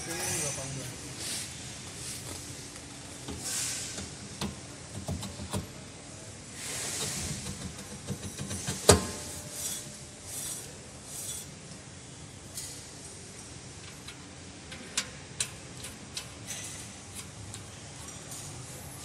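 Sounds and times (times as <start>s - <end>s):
brake drum scraping: 6.6s - 11.5s.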